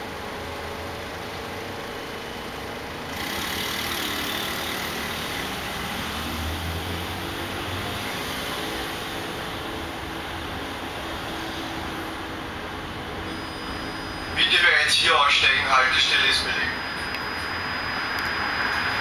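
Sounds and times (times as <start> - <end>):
tram equipment hum and hiss: 0.0 - 19.0.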